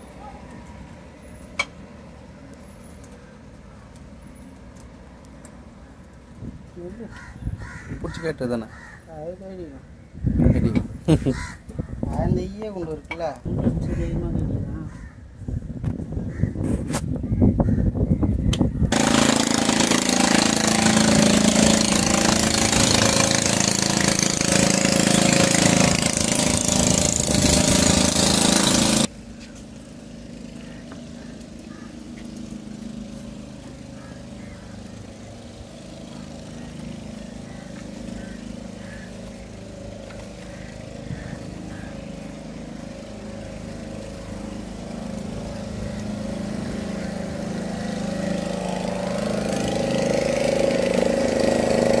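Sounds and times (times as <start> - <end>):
engine running: 18.6 - 52.0.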